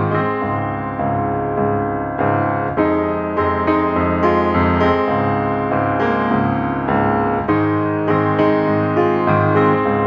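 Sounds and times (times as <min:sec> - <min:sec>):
piano music: 0:00.0 - 0:10.0.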